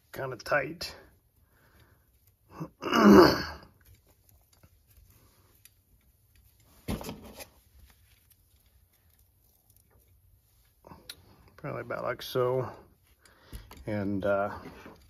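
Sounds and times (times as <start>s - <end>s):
man clearing his throat: 2.8s - 3.6s.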